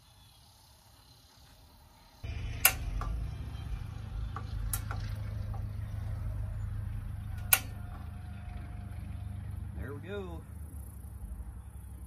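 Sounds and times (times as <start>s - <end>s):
low engine rumble: 2.2s - 12.0s
igniter clicks: 2.5s - 3.2s, 4.3s - 5.7s, 7.4s - 8.0s.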